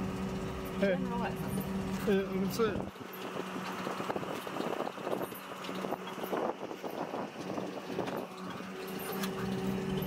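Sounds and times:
ferry engine hum: 0.0 - 10.0
rough wind noise: 2.8 - 9.0.

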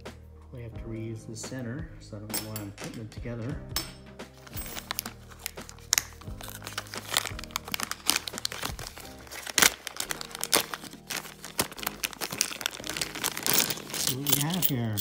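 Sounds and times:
background music with bass line: 0.0 - 15.0
plastic bag crinkling: 4.4 - 15.0.

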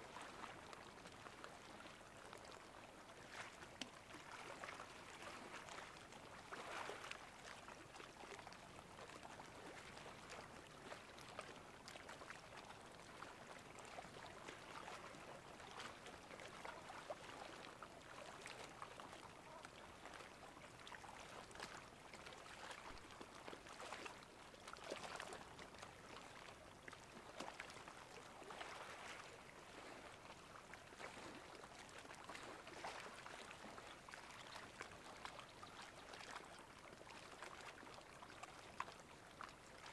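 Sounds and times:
faint water lapping and trickling: 0.0 - 39.9.

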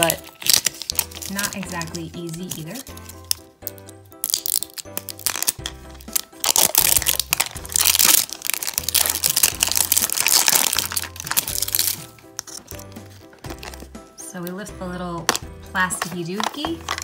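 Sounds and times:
plastic wrap crinkling: 0.0 - 14.0
background music: 0.0 - 17.0.

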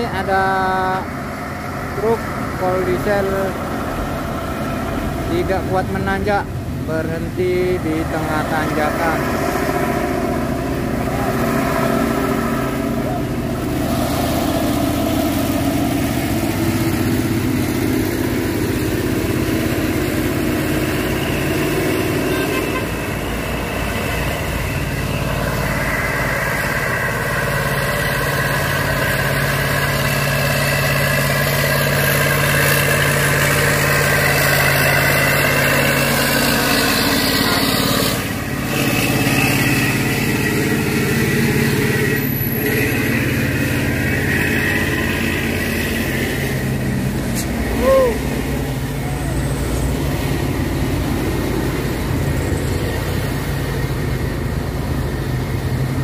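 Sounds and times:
steady engine hum: 0.0 - 56.0
trucks and cars driving past: 0.0 - 56.0.

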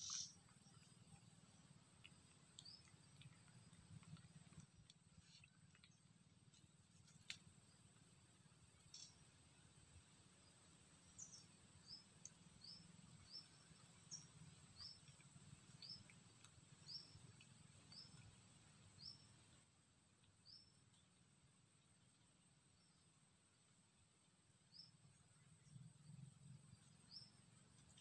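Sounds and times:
bird chirping: 0.0 - 6.1, 10.4 - 19.6, 24.7 - 28.0.

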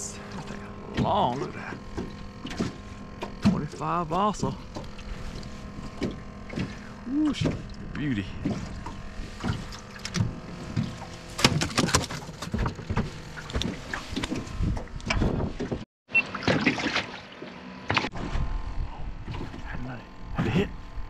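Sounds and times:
knocks and thumps on metal boat: 0.3 - 15.8.

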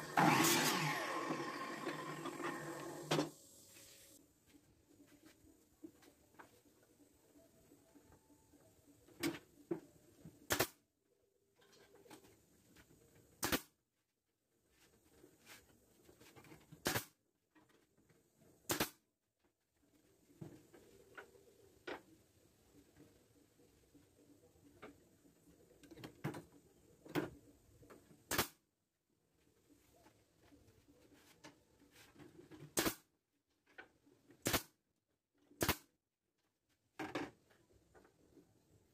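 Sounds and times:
nail gun firing into wood: 10.5 - 10.8, 13.4 - 13.7, 16.8 - 17.1, 18.7 - 19.0, 28.3 - 28.6, 32.8 - 33.1, 34.4 - 34.8, 35.6 - 35.9.

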